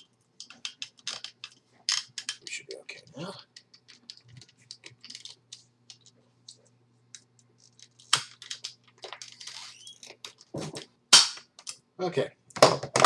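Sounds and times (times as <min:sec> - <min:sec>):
corkscrew clicking and squeaking: 0:07.6 - 0:10.4.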